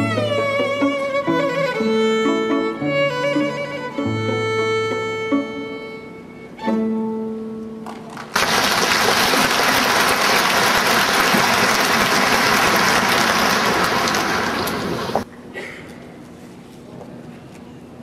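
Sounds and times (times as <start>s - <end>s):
string quartet chords: 0.0s - 7.8s
audience applause: 8.0s - 15.2s.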